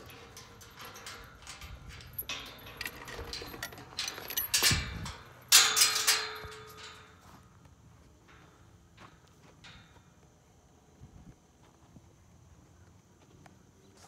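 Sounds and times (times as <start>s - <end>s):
hooves and tack clicking: 0.0s - 10.4s.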